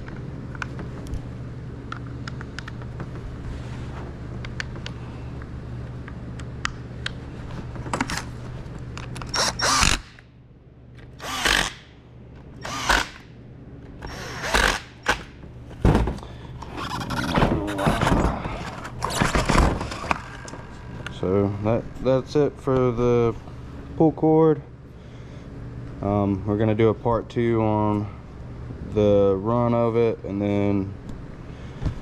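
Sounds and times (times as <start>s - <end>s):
steady low hum: 0.0s - 32.0s
cordless drill driving screws: 9.3s - 10.1s, 11.2s - 11.8s, 12.6s - 13.2s, 14.0s - 15.2s.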